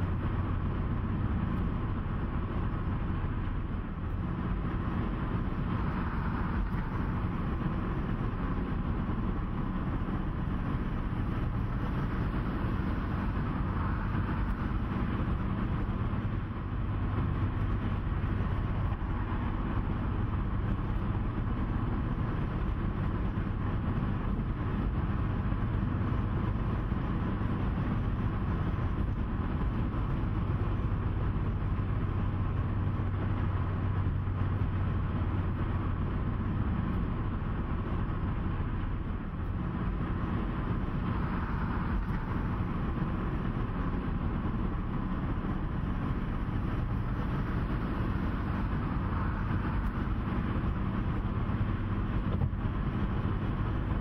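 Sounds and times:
constant low hum: 0.0 - 54.0
road rumble: 0.0 - 54.0
vehicle engine drone: 0.0 - 54.0.

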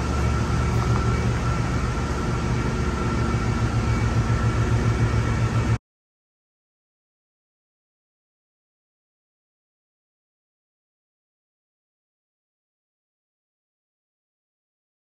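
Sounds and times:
diesel engine running: 0.0 - 5.8.

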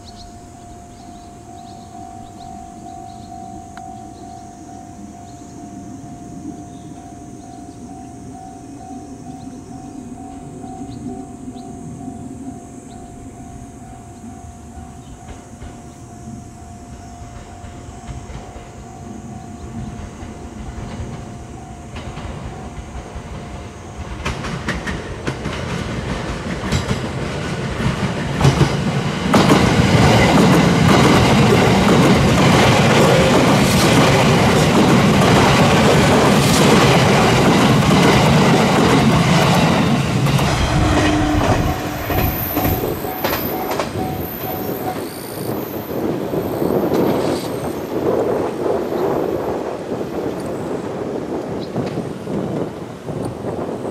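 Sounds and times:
train passing: 0.0 - 53.9
wheels clattering over rail joints: 14.9 - 53.9.

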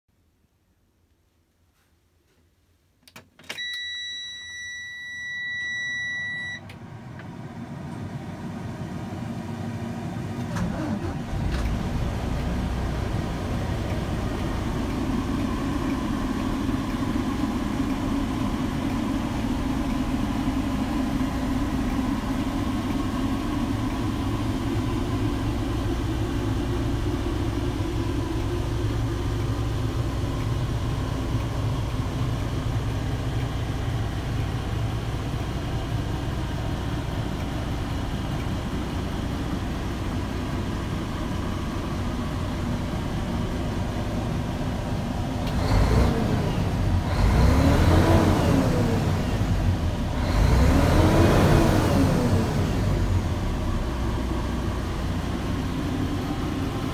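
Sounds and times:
clicks: 3.0 - 3.9
diesel engine starting and idling: 5.3 - 56.9.

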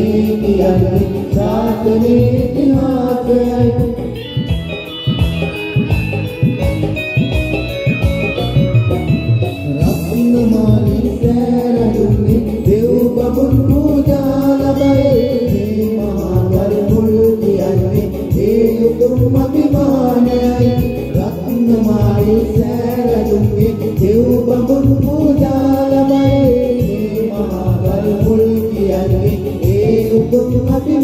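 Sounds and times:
group singing into microphones: 0.0 - 5.9, 9.6 - 31.0
instrumental backing with beat: 0.0 - 31.0.

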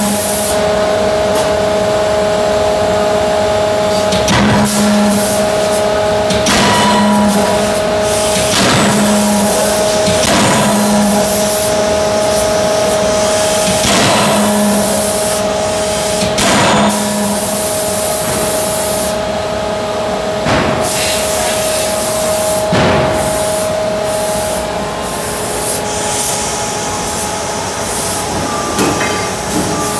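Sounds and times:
machinery hum and hiss: 0.0 - 29.9
forging hammer striking hot steel: 6.2 - 11.5, 12.8 - 15.5.

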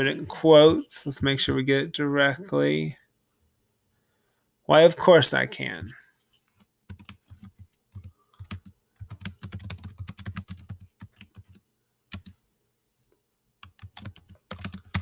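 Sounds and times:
computer keyboard typing: 6.9 - 12.4, 13.6 - 15.0.

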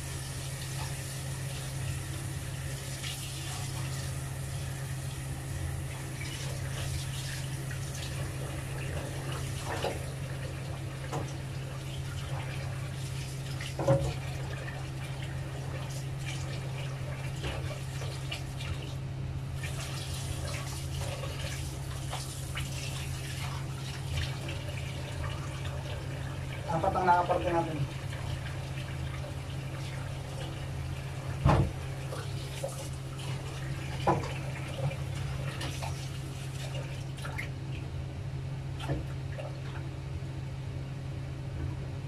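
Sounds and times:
tap water running into sink: 0.0 - 19.0, 19.6 - 37.5
knocks and clatter in sink: 13.8 - 14.3, 31.4 - 31.8, 34.0 - 35.0.

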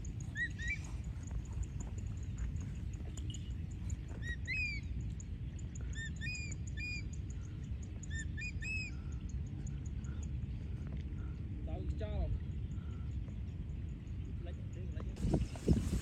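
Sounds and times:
high bird chirps: 0.0 - 3.6
steady low rumble: 0.0 - 16.0.

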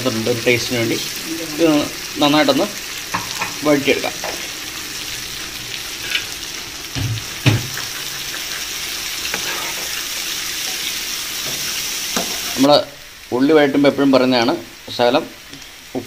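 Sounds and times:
onions sizzling in hot oil: 0.0 - 16.0
spatula knocking against pan: 3.1 - 3.6.

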